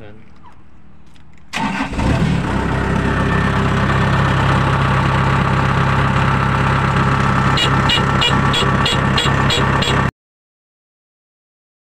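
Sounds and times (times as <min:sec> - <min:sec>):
diesel engine running: 0:01.6 - 0:10.1.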